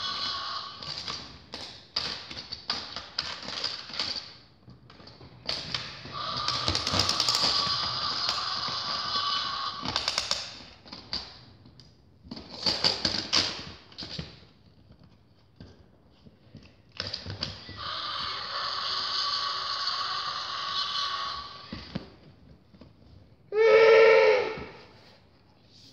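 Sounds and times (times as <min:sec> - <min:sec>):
plastic toys clattering together: 0:00.0 - 0:09.2, 0:09.8 - 0:11.5, 0:12.2 - 0:14.5
rasping roar: 0:17.8 - 0:21.7.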